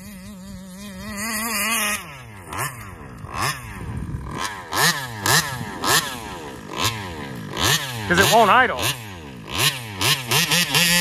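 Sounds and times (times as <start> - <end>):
two-stroke engine revving: 0.0 - 11.0.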